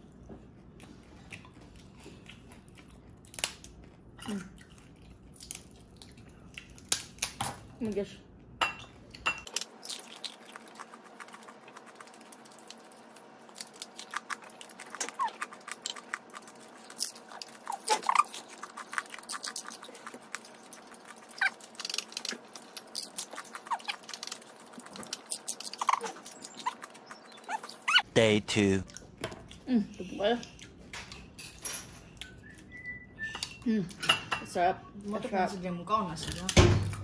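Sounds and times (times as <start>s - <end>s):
crunching and chewing pork rind: 0.0s - 7.4s, 9.5s - 28.0s.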